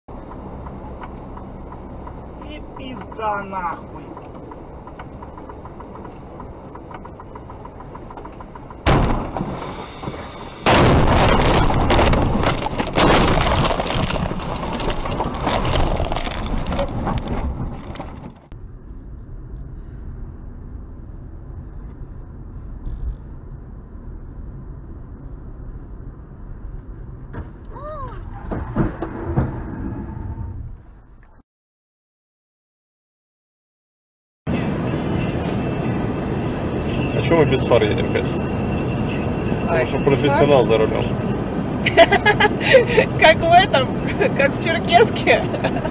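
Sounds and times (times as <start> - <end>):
road and engine noise: 0.1 - 31.4, 34.5 - 45.9
car crash impact: 8.8 - 18.4, 28.4 - 30.6
car crashing and scraping through brush: 8.8 - 18.5.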